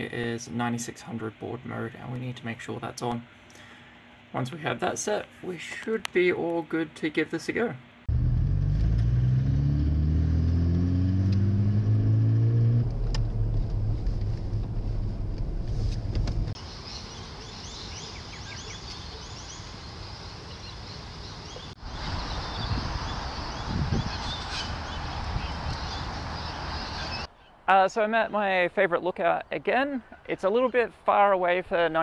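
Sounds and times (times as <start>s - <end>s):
vehicle engine accelerating: 8.1s - 16.6s
birds chirping: 16.6s - 28.6s.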